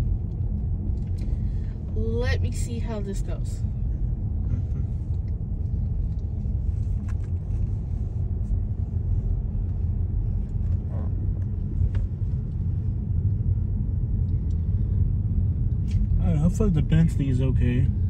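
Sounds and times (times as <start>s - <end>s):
car rumbling from inside: 0.0s - 18.0s.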